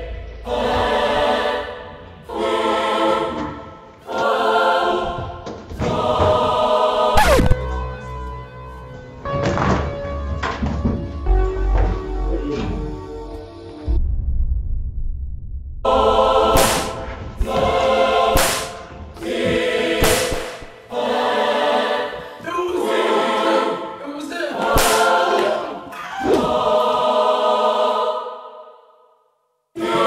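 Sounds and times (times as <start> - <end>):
choir singing held chords: 0.0 - 8.4, 15.9 - 30.0
sudden sharp hits: 7.2 - 7.7.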